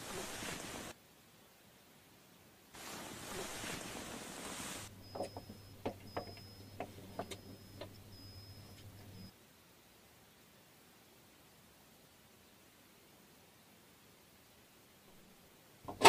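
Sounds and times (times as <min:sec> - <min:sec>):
hiss: 0:00.0 - 0:01.0, 0:02.7 - 0:04.9
low steady hum: 0:00.0 - 0:16.0.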